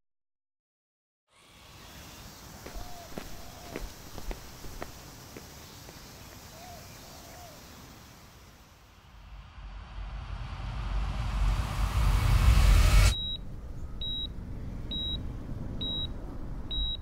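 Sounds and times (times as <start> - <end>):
rushing swell with deep rumble: 9.0 - 15.8
low rumble: 9.0 - 16.6
heart monitor beeping: 13.1 - 13.4, 14.0 - 14.3, 14.9 - 15.2, 15.8 - 16.1, 16.7 - 17.0.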